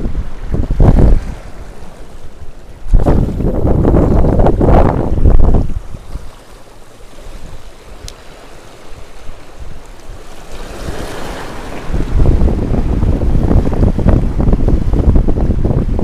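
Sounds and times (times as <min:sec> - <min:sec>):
wind buffeting microphone: 0:00.0 - 0:16.0
small waves washing over rocks: 0:00.7 - 0:04.5, 0:05.3 - 0:14.3.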